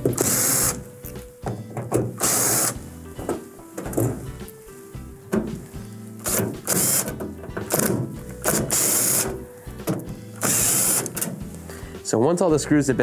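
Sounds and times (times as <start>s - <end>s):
cordless drill running in bursts: 0.2s - 0.8s, 2.2s - 2.8s, 8.5s - 9.3s, 10.4s - 11.2s.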